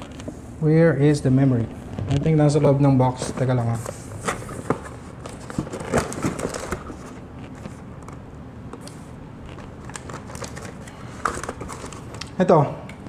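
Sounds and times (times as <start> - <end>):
cardboard packaging rustling: 3.1 - 8.2, 9.4 - 12.2.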